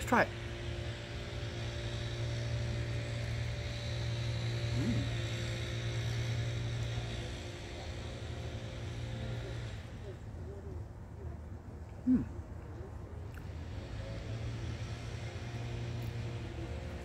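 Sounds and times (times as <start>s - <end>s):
low mechanical engine drone: 0.0s - 17.0s.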